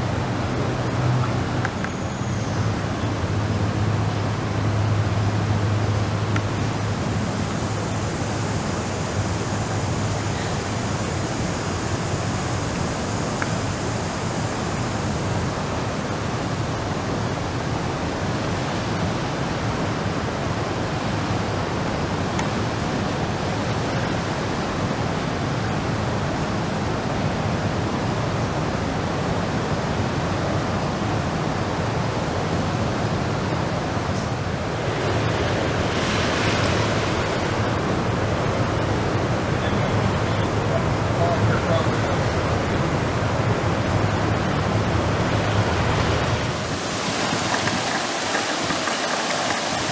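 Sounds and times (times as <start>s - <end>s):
river rapids roaring: 0.0s - 49.9s.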